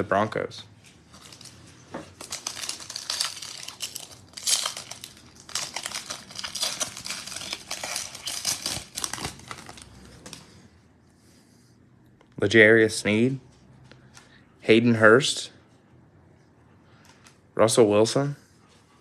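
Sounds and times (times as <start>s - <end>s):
foil wrapper crinkling: 1.2s - 10.4s.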